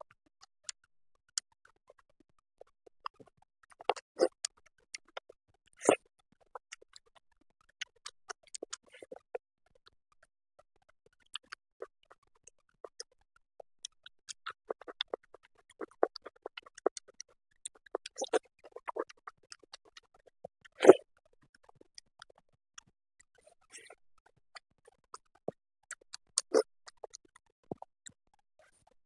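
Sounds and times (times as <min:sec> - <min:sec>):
wet mouth clicks and chewing: 0:02.6 - 0:09.9, 0:11.1 - 0:13.1, 0:13.8 - 0:28.9.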